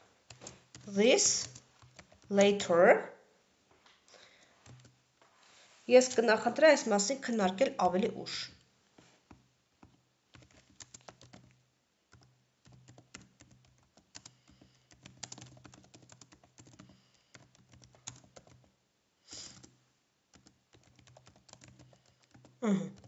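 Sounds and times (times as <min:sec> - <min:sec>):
typing on computer keyboard: 0:00.3 - 0:02.4, 0:04.6 - 0:05.0, 0:09.8 - 0:18.7, 0:19.5 - 0:19.7, 0:20.3 - 0:23.0.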